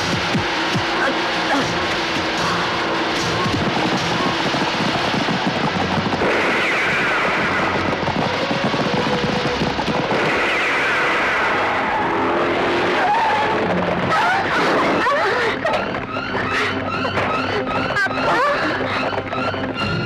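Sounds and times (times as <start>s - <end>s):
noisy wash: 0.0s - 16.8s
car driving fast on dirt road: 0.0s - 20.0s
horses galloping on dirt: 3.5s - 10.2s.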